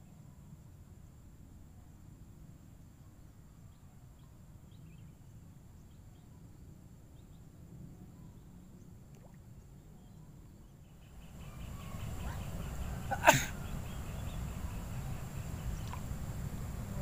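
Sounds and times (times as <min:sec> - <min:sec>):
faint high chirps: 0:10.0 - 0:16.2.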